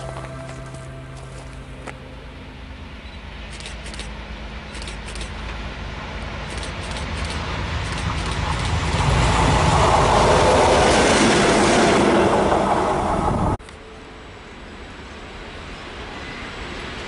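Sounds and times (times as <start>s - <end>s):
locomotive engine rumble: 0.0s - 13.6s
wheels clattering on rails: 3.5s - 13.6s.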